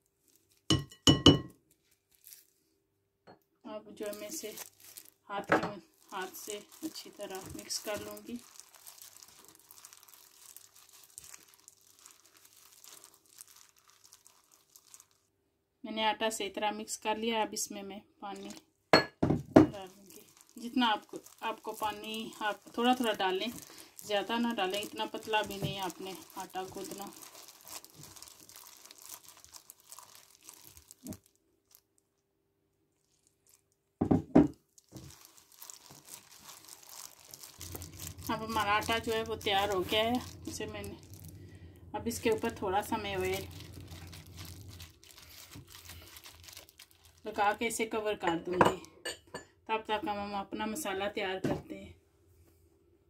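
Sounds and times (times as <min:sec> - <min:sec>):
plastic glove rustling in flour: 0:00.0 - 0:02.8, 0:04.0 - 0:15.3, 0:18.3 - 0:18.6, 0:19.7 - 0:32.0, 0:32.9 - 0:33.9, 0:34.6 - 0:48.7.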